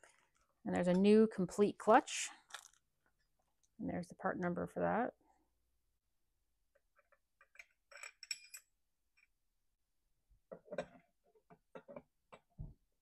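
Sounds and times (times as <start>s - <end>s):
metallic clicks and clinks: 7.4s - 8.7s.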